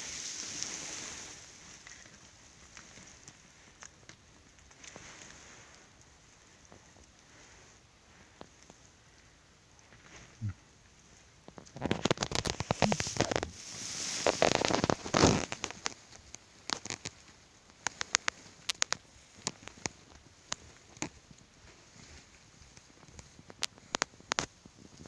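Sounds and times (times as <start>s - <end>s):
straw bedding rustling: 0.0s - 9.0s, 11.2s - 24.5s
microphone contact noise: 11.8s - 15.8s
breathy rush of noise: 12.5s - 15.5s.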